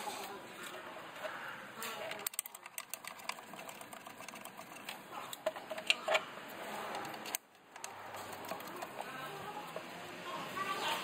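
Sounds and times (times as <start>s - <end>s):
bolts clicking into plastic: 1.8s - 6.3s.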